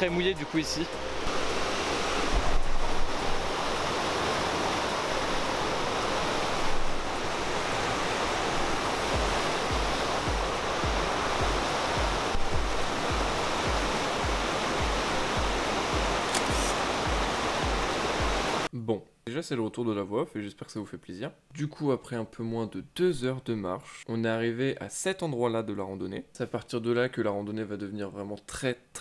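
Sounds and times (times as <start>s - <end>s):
stream and waterfalls rushing: 0.0s - 18.7s
background music beat: 8.9s - 18.6s.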